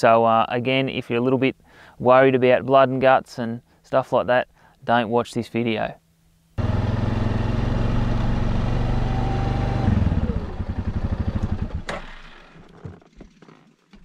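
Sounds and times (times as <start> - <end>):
quad bike engine idling: 6.6 - 12.6
sharp crack: 11.8 - 12.7.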